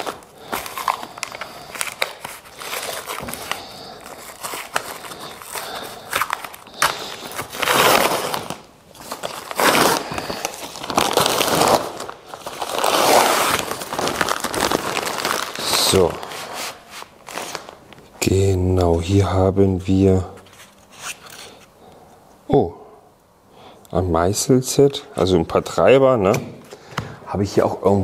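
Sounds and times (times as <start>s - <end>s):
plastic film crinkling: 0.0s - 18.1s.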